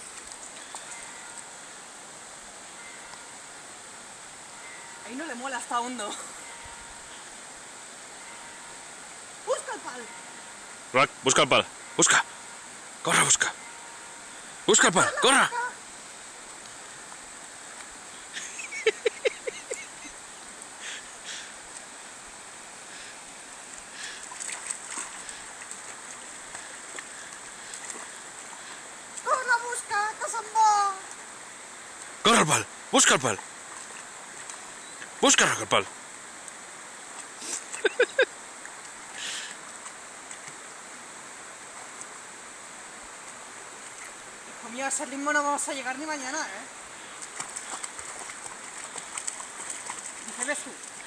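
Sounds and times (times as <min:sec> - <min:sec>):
shallow river rushing: 0:00.0 - 0:51.0
dog splashing through water: 0:47.2 - 0:51.0.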